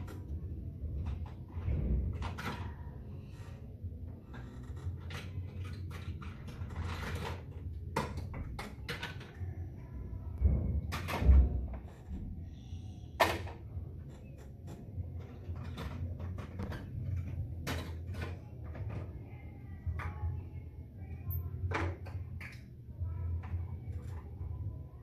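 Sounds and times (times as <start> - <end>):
knocks and thuds of people training: 10.3 - 12.4.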